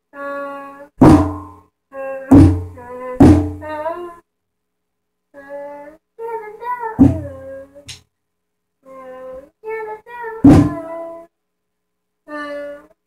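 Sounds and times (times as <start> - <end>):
child singing: 0.1 - 1.0, 1.9 - 4.2, 5.3 - 8.0, 8.8 - 11.4, 12.3 - 13.0.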